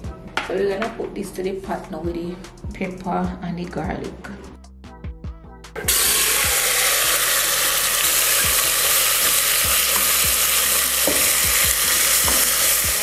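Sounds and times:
meat sizzling in hot oil: 5.8s - 13.0s.

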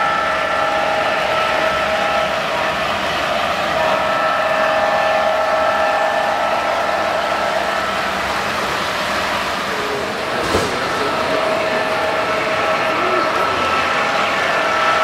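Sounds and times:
constant whine: 0.0s - 15.0s
model trains running on track: 0.0s - 15.0s.

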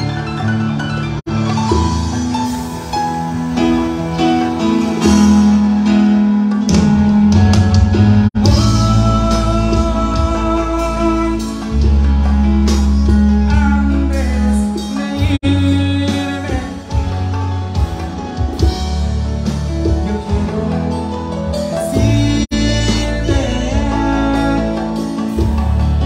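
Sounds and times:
live band music: 0.0s - 26.0s
person singing: 8.4s - 12.1s, 13.3s - 17.6s, 19.9s - 26.0s.

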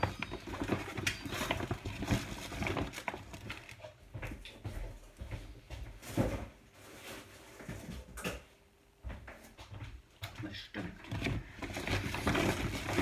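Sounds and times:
groceries clicks and knocks: 0.0s - 4.8s, 10.2s - 13.0s.

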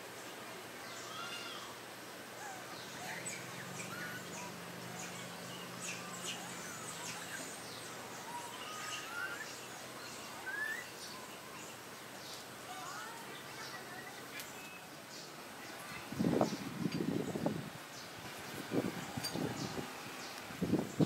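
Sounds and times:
bird chirps: 2.7s - 15.8s.

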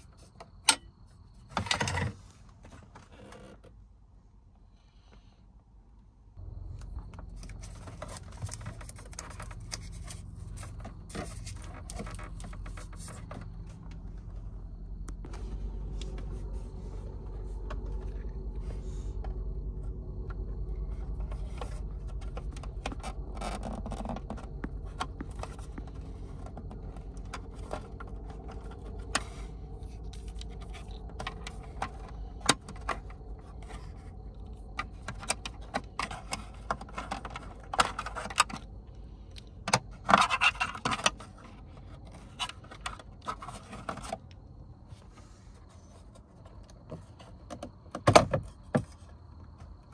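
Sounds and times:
steady low hum: 3.8s - 47.8s
scraping and rustling: 6.4s - 38.6s.

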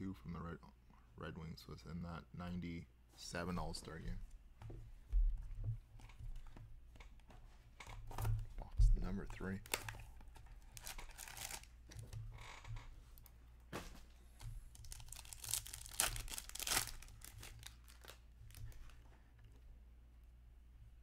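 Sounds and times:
wrapper tearing and crinkling: 9.6s - 11.8s, 14.7s - 18.9s.

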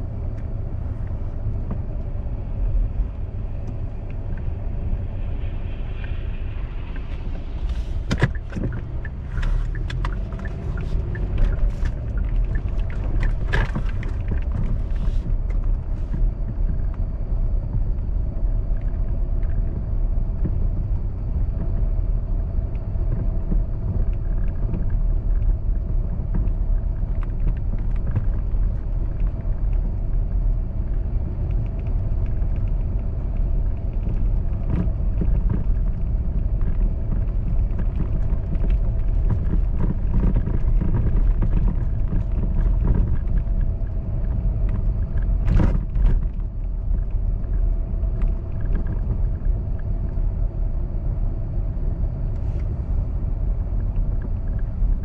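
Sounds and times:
engine and tyre rumble: 0.0s - 55.0s
sharp clicks and crackles: 6.8s - 17.0s, 22.7s - 50.2s.

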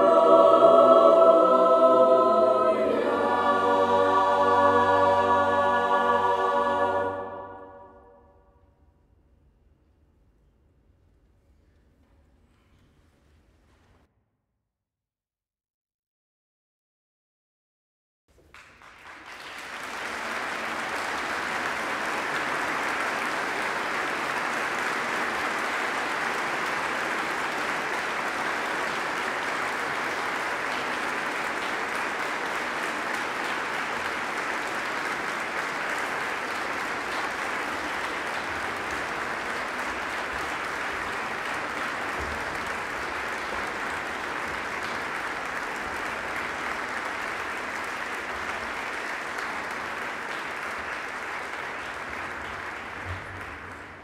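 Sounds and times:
audience applauding: 18.3s - 54.0s.

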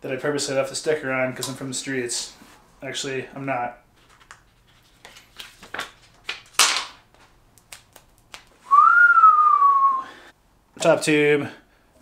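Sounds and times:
plastic film crinkling and clicking: 4.0s - 8.6s
person whistling long note: 8.6s - 10.3s.

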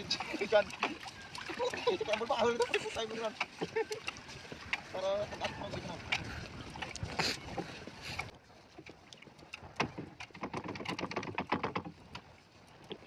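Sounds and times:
net knocking against wooden hull: 8.8s - 12.3s.

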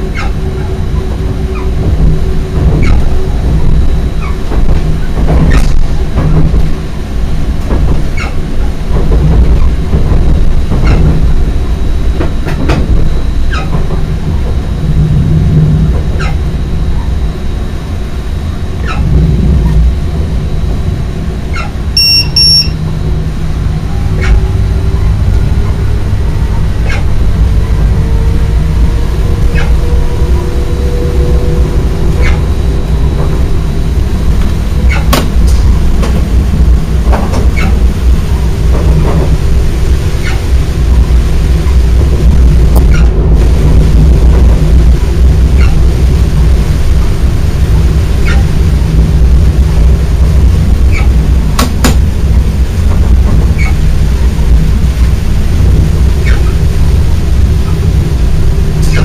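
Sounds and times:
train low rumble: 0.0s - 59.0s
faint rising whine: 13.0s - 51.5s
double electronic beep: 22.0s - 22.8s.

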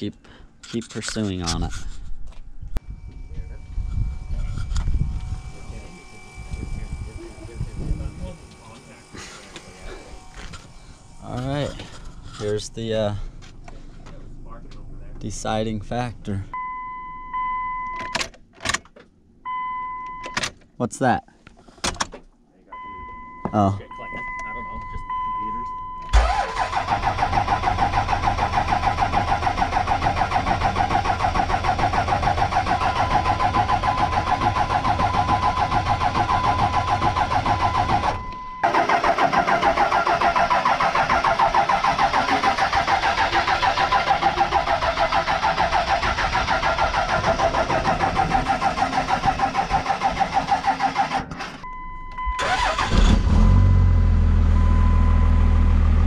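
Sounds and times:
diesel engine cranking on starter: 26.1s - 56.0s
diesel engine idling: 26.2s - 51.0s.

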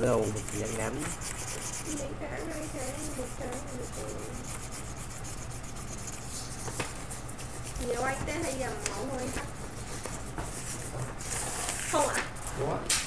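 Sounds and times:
colouring tool scratching on paper: 0.0s - 12.0s.

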